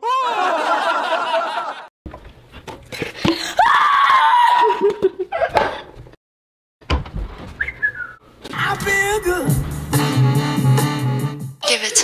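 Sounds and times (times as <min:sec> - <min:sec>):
young child screaming: 0:03.6 - 0:04.8.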